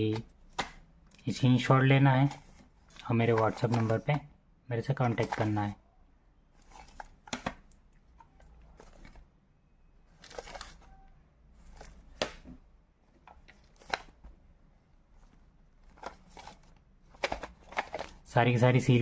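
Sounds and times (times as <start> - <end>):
soft plastic rustling: 0.0 - 5.8, 6.5 - 9.4, 10.0 - 19.0
plastic cassette clicks and taps: 0.1 - 1.2, 7.0 - 9.1, 11.8 - 12.6, 17.1 - 18.2.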